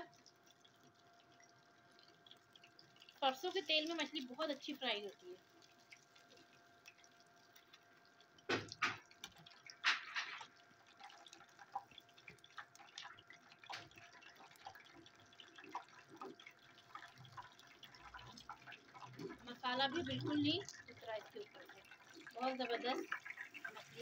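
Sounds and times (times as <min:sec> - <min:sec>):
fish frying in hot oil: 0:00.0 - 0:24.0.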